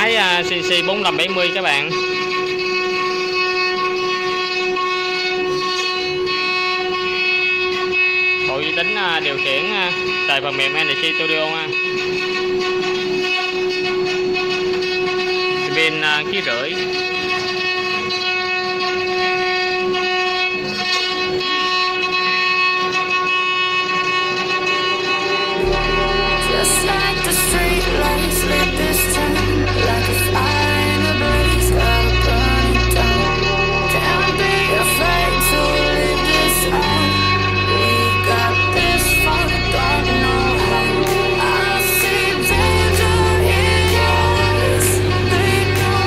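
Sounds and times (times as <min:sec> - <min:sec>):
spindle motor whine: 0:00.0 - 0:46.0.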